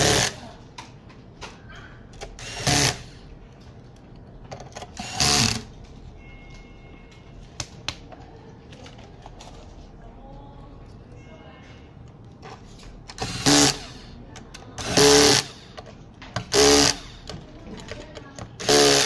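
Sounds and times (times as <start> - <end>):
electric screwdriver running: 2.4 - 3.1, 5.0 - 5.7, 13.2 - 14.0, 14.8 - 15.7, 16.4 - 17.2, 18.6 - 19.0.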